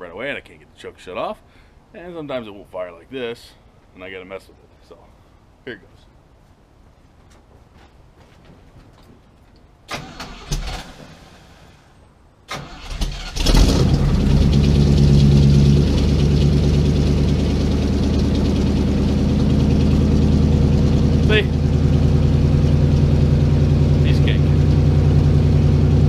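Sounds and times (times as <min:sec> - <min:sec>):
starter motor cranking: 0:12.5 - 0:18.7
car engine idling: 0:13.0 - 0:26.0
engine knocks: 0:13.4 - 0:26.0.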